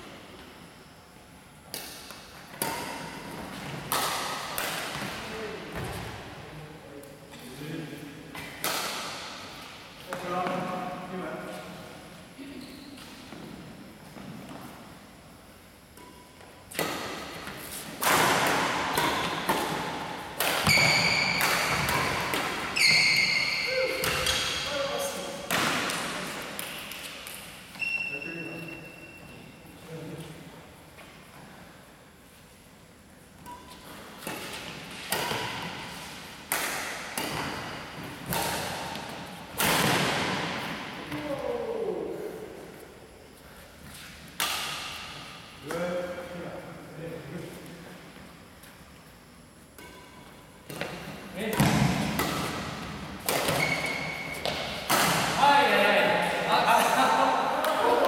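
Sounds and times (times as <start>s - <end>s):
rackets hitting shuttlecock: 1.7s - 6.0s, 8.3s - 10.6s, 16.0s - 27.7s, 33.4s - 41.2s, 44.0s - 45.8s, 49.8s - 55.4s
short high squeak: 22.8s - 23.7s, 27.8s - 29.2s.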